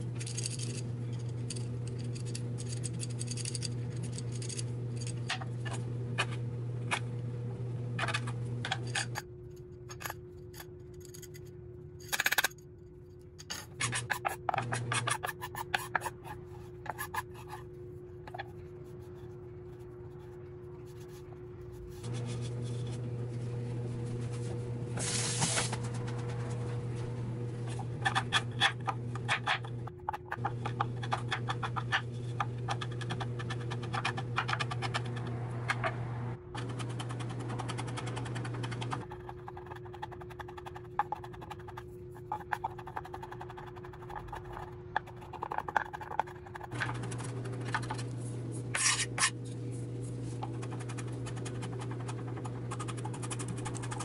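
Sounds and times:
steady low hum: 0.0s - 54.0s
kitchen utensils scraping: 8.0s - 9.2s, 13.4s - 17.7s, 27.6s - 36.0s, 45.4s - 54.0s.

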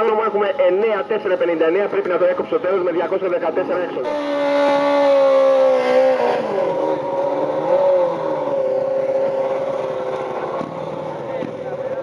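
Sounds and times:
motorcycle engine revving: 4.0s - 12.0s.

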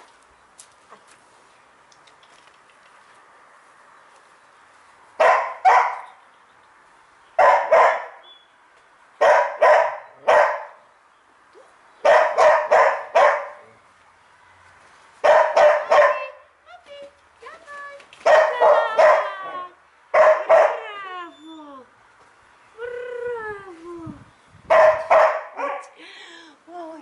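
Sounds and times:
dog barking: 5.2s - 6.1s, 7.4s - 8.2s, 9.2s - 10.8s, 12.0s - 13.6s, 15.2s - 16.3s, 18.2s - 19.3s, 20.2s - 20.8s, 24.7s - 26.0s.

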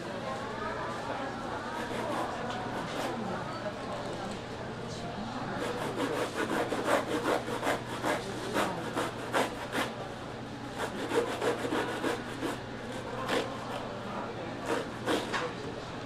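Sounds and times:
knife sawing through fish: 1.7s - 3.2s, 5.6s - 9.9s, 10.8s - 13.8s, 14.6s - 15.4s.

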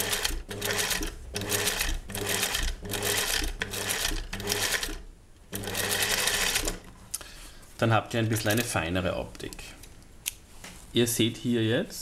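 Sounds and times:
sewing machine stitching: 0.0s - 6.9s.

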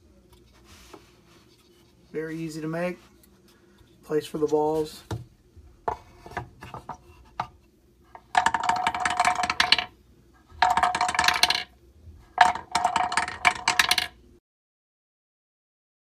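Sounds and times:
steel balls clattering through pegs: 8.2s - 14.2s.

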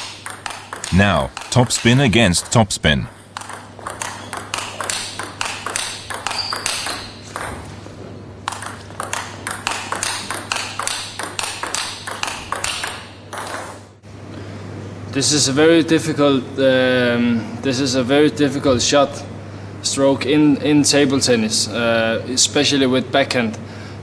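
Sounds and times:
table tennis ball clicking: 0.0s - 2.0s, 3.1s - 7.6s, 8.4s - 13.7s.

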